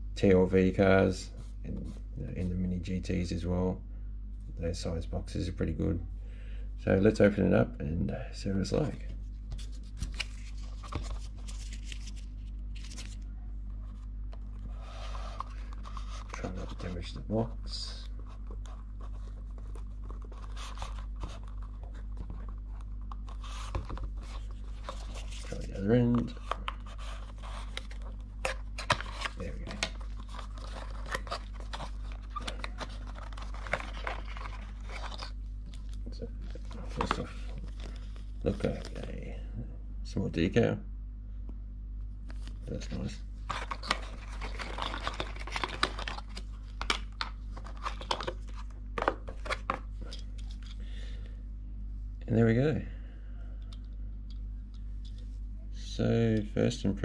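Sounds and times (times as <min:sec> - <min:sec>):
low steady hum: 0:00.0 - 0:57.0
plastic packaging crinkling: 0:18.5 - 0:38.8, 0:43.4 - 0:50.7.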